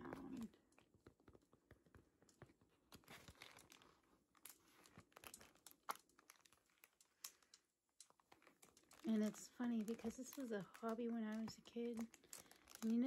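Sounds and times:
sticker sheets crinkling: 0.0s - 13.0s.

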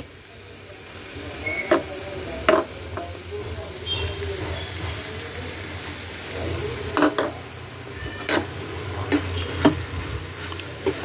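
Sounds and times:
vegetables sizzling in oil: 0.0s - 11.0s
spoon knocking against pan: 2.5s - 2.7s.

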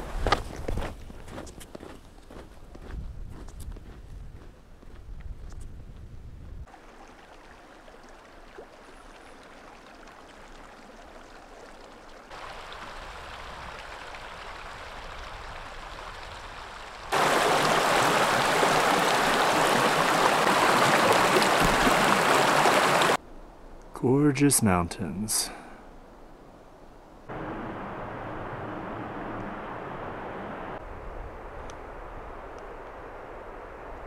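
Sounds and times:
creek rushing: 6.7s - 23.2s, 27.3s - 30.8s.

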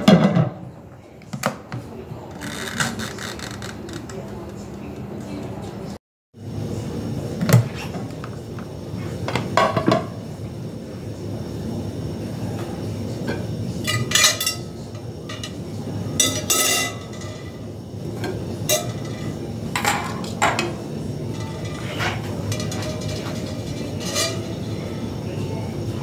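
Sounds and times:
low background hum: 0.6s - 26.0s
dishes and cutlery clinking: 13.2s - 25.1s.

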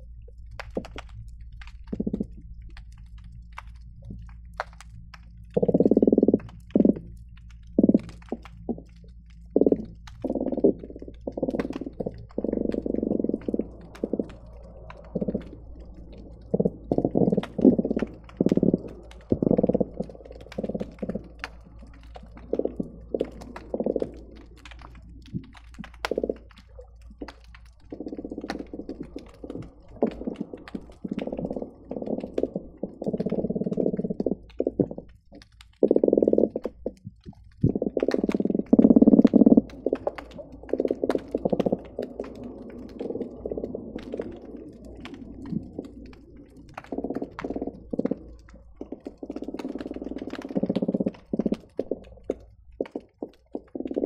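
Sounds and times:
fish croaking underwater: 0.0s - 54.0s.

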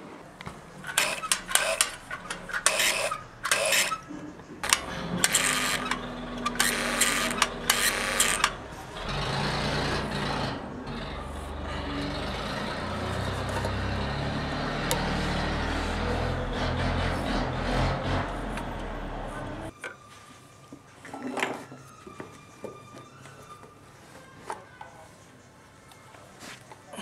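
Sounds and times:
sewing machine scraping bursts: 0.9s - 18.5s.

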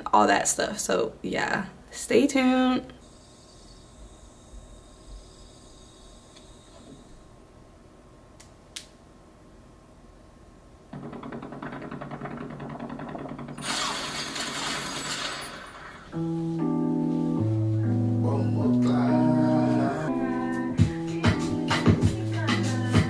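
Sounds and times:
click: 8.4s - 9.0s
rushing crackly noise: 10.9s - 16.2s
music with bass and synth notes: 16.2s - 23.0s.

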